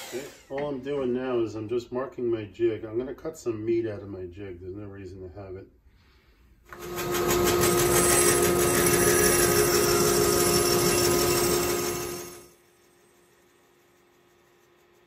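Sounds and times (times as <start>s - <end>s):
bandsaw cutting plywood: 0.0s - 0.6s, 6.7s - 12.5s.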